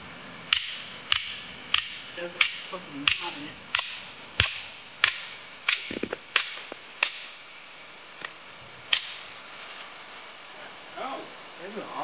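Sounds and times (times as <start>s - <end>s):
hammer striking hatchet: 0.5s - 7.3s.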